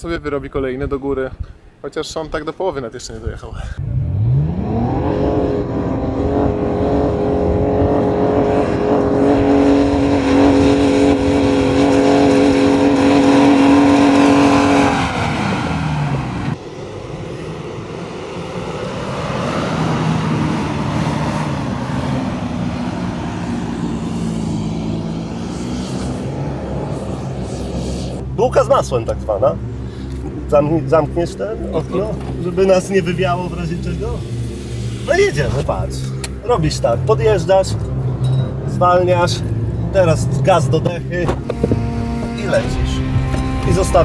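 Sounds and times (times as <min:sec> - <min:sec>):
engine revving hard: 0:03.8 - 0:16.6, 0:17.8 - 0:29.9
lower engine note: 0:03.8 - 0:44.0.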